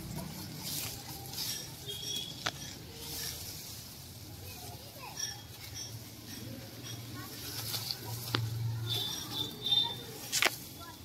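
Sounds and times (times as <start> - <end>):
leaves and stems rustling: 0.0 - 11.0.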